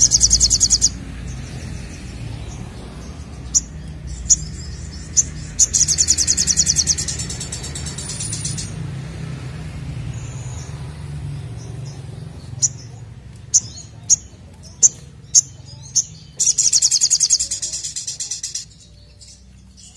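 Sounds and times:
fast high bird trill: 0.0 - 1.0, 3.3 - 8.9, 12.5 - 19.0
bird singing high chip notes: 0.0 - 9.2, 10.0 - 19.9.

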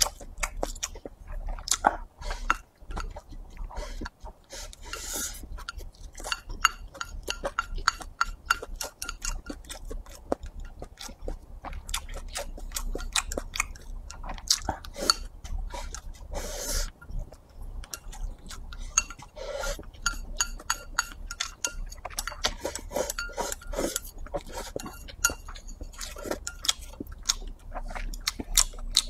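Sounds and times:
person chewing: 0.0 - 29.0
chopsticks clicking on ceramic bowl: 5.6 - 10.4, 20.0 - 23.4.

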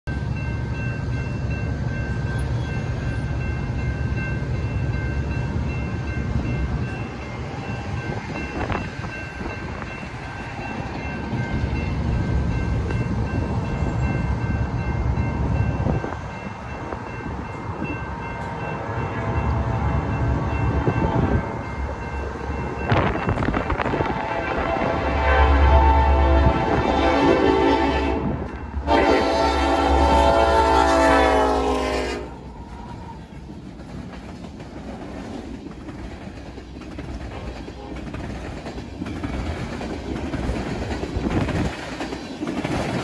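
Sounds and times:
distant freight train: 0.0 - 43.0
crossing warning bell ringing: 0.1 - 33.3
wind rumble on microphone: 20.0 - 21.6, 22.6 - 28.6, 40.2 - 41.9.

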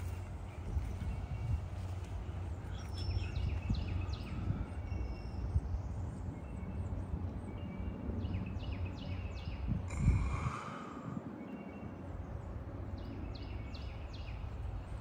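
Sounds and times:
birds calling: 0.0 - 15.0
low rumble: 9.3 - 15.0.

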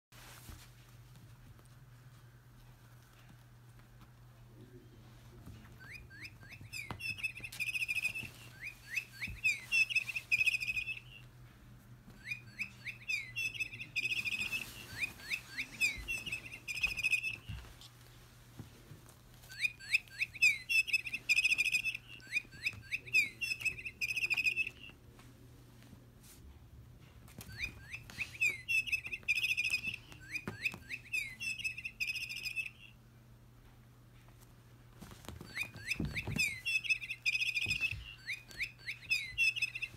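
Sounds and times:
electronic toy bird chirps: 5.8 - 11.3, 12.2 - 17.6, 19.5 - 24.9, 27.4 - 33.0, 35.4 - 39.9.

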